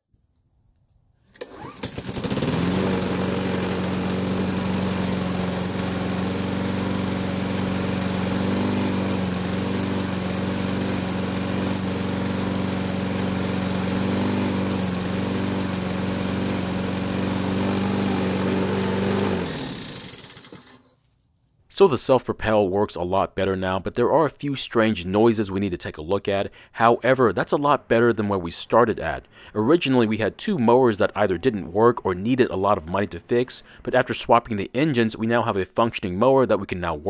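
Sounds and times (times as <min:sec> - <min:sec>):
lawn mower engine running: 0:01.4 - 0:20.9.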